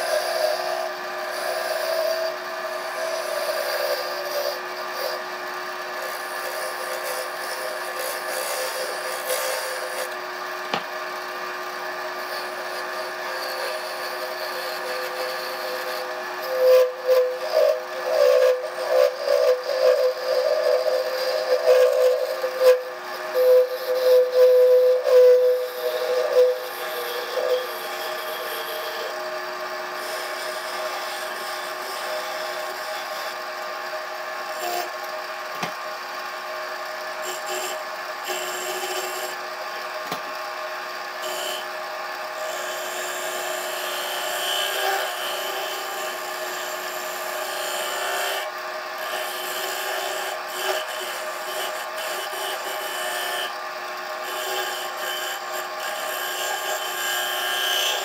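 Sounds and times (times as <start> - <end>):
wood lathe humming: 0.0 - 58.0.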